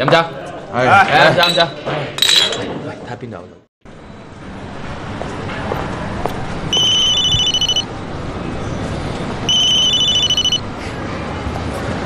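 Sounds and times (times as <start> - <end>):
mobile phone ringing: 6.7 - 7.9, 9.5 - 10.6.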